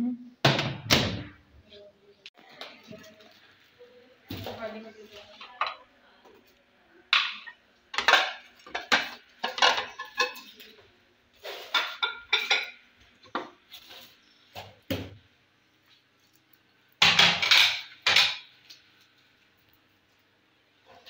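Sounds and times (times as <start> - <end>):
crockery clattering: 7.2 - 10.7, 11.6 - 13.5, 17.0 - 18.5.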